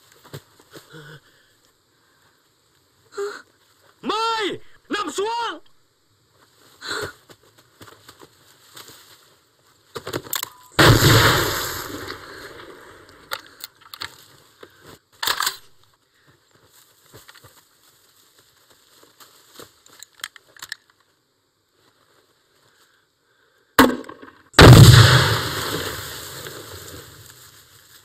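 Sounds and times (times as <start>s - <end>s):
clicks and rattles of rifles: 10.0s - 10.8s, 13.2s - 16.0s, 17.2s - 17.6s, 19.8s - 21.2s
gunshot bang: 10.8s - 12.4s, 23.8s - 26.8s
sharp gunshot crack: 10.8s - 12.8s, 23.8s - 27.2s.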